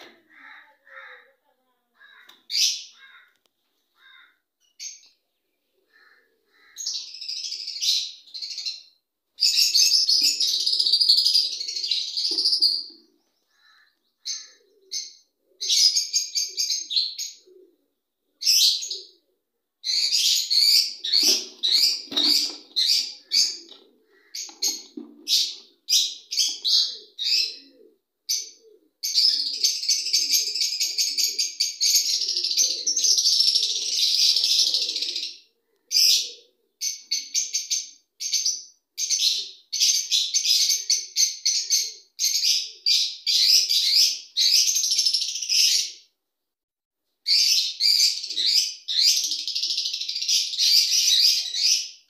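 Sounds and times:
parakeets chirping and screeching: 19.9 - 27.0.

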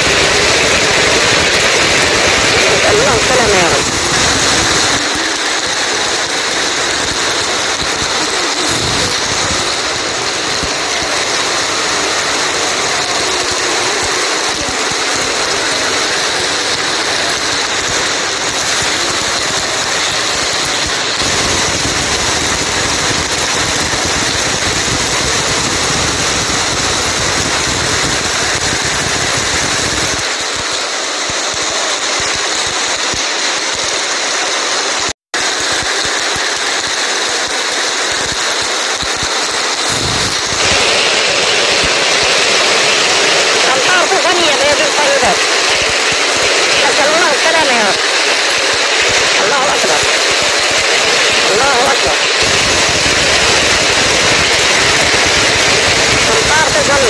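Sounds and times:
heavy rain falling: 0.0 - 57.0.

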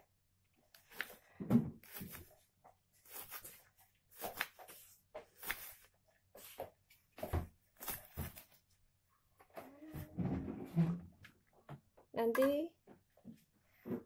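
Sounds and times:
knife slicing onion on board: 0.7 - 2.4, 3.0 - 6.6, 7.2 - 8.6.

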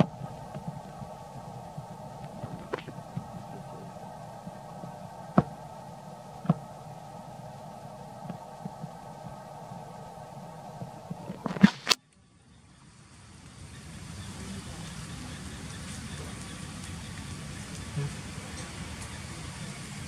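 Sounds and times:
steady low hum: 0.0 - 20.0
sharp clicks: 10.8 - 12.1.

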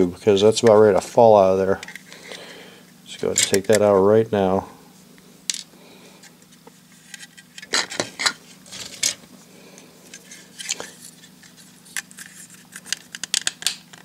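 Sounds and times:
steady low hum: 0.0 - 14.0
plastic parts clicking and scraping: 10.1 - 14.0.

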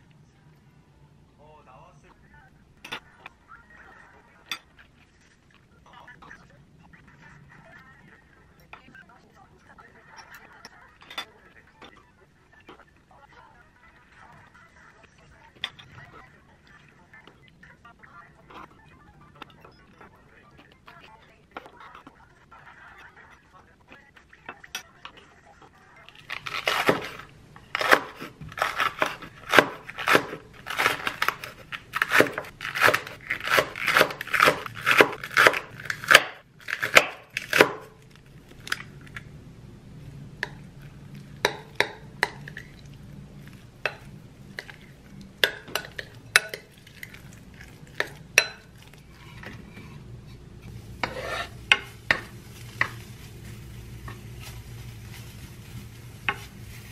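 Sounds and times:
low steady hum: 0.0 - 56.9
knife chopping on wooden board: 27.8 - 37.9.

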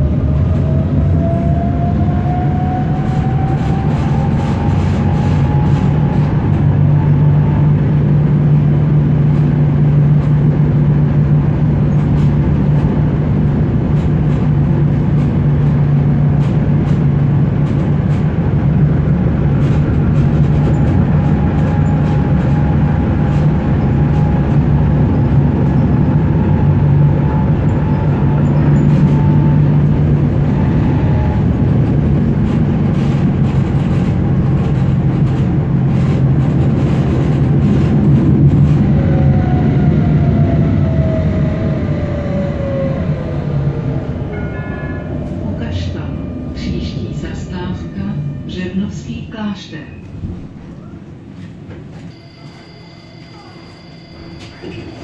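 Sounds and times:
low motor hum: 0.0 - 55.0
tram wheels rumbling on rail: 0.0 - 55.0
faint high whine: 52.0 - 55.0.

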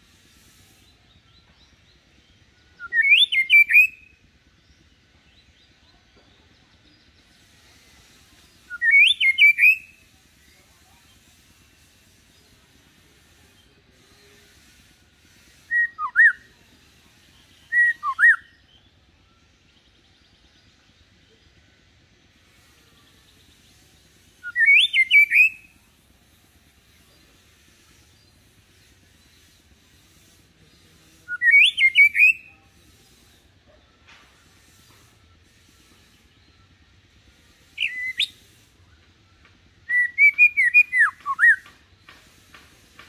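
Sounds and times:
bird singing whistled phrases: 2.8 - 4.2, 8.7 - 10.0, 15.7 - 16.5, 17.6 - 18.6, 24.4 - 25.8, 31.3 - 32.6, 37.8 - 38.4, 39.8 - 41.7.

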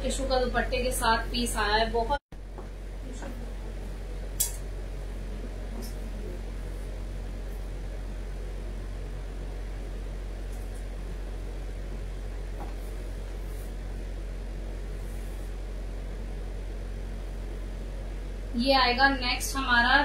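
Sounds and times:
room hum and hiss: 0.0 - 20.0.

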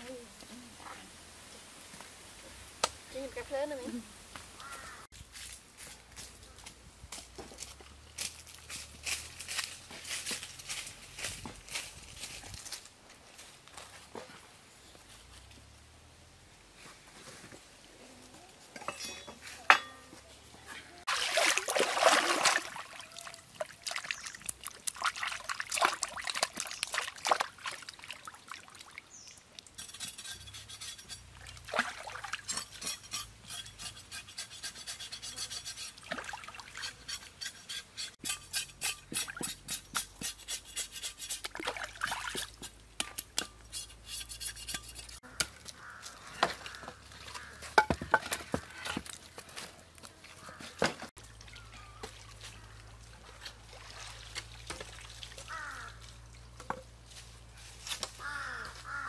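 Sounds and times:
water splashing and sloshing: 20.9 - 33.6, 35.6 - 37.8, 40.6 - 58.2.

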